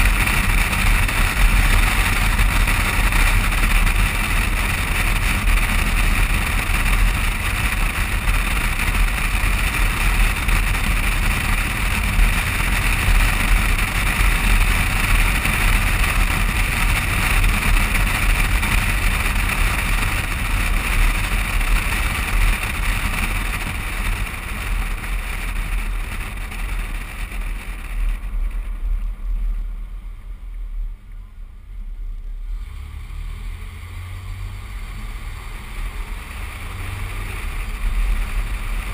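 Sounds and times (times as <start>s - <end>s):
low engine hum: 0.0s - 38.9s
road noise rumble: 0.0s - 38.9s.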